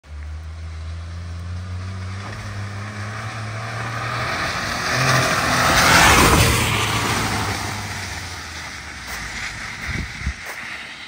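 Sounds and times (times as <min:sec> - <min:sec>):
car engine humming: 0:00.0 - 0:11.0
hiss: 0:08.5 - 0:11.0.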